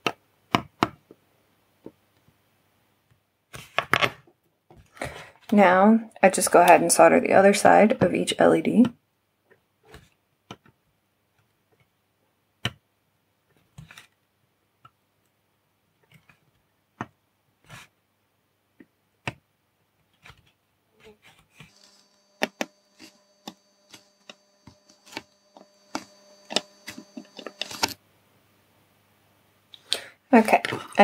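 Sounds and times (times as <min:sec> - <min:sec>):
faint hum with high whine: 0:21.6 - 0:29.7.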